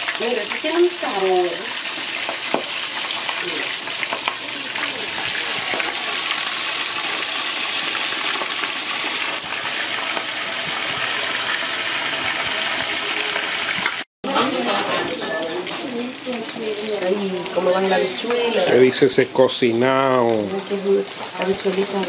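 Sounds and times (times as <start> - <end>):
oil popping: 0.0 - 14.0
chicken frying in oil: 0.0 - 22.0.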